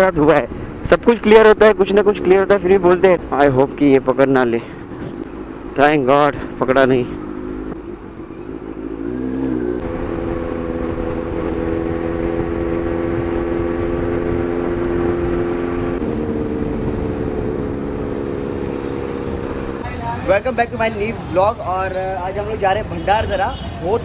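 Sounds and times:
wind and road noise: 0.0 - 24.0
motorcycle engine accelerating: 5.0 - 19.9.

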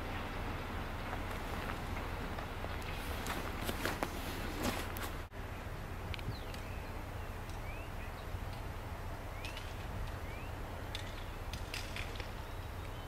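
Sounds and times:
small birds chirping: 6.1 - 13.0.

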